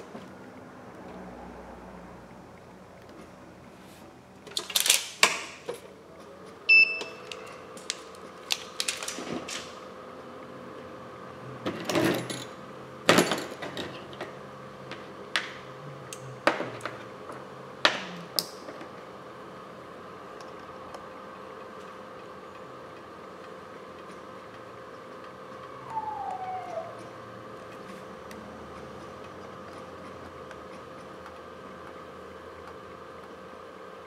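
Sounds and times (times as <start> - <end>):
short beep: 6.7 - 7.2.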